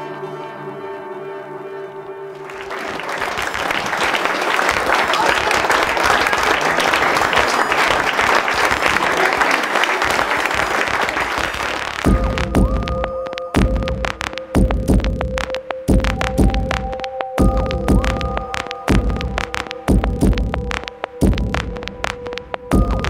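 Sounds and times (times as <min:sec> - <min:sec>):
audience applause: 0:02.4 - 0:12.5.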